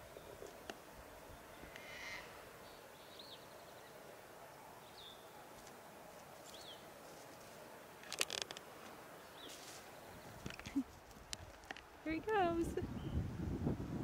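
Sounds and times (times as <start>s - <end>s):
faint high chirping calls: 1.3s - 5.5s
faint rustle: 4.8s - 12.9s.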